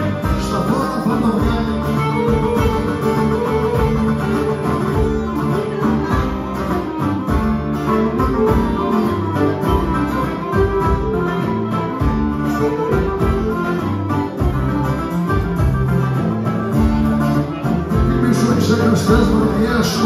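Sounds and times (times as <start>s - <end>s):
folk band playing dance tune: 0.0s - 20.0s
lute and guitars strumming: 0.0s - 20.0s.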